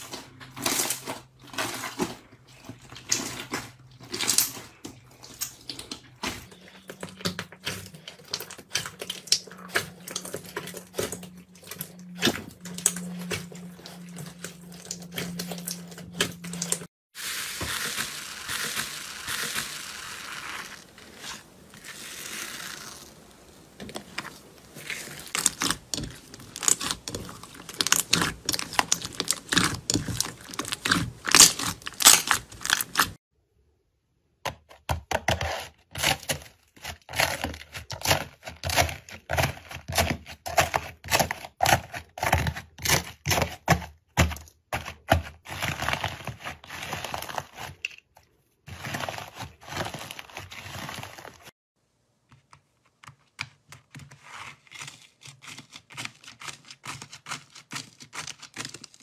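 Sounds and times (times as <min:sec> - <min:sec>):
crusty slime crackling: 0:00.0 - 0:33.2.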